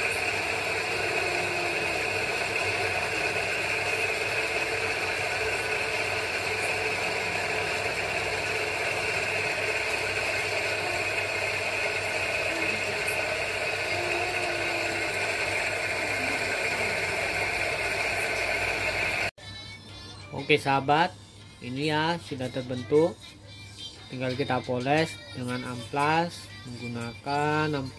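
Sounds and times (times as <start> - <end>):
bench grinder motor whirring: 0.0 - 19.3.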